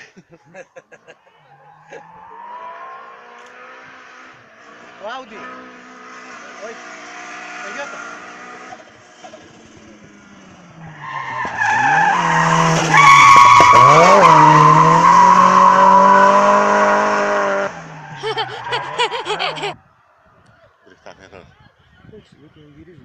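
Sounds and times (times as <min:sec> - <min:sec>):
racing car engine at high revs: 0:01.5 - 0:19.5
tyre squeal: 0:10.9 - 0:16.2.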